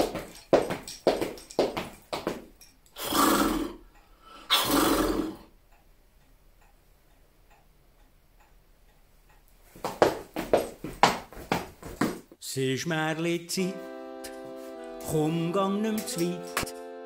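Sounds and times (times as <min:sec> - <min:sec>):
quick clopping clicks: 0:00.0 - 0:03.6
wall clock ticking: 0:00.0 - 0:12.4.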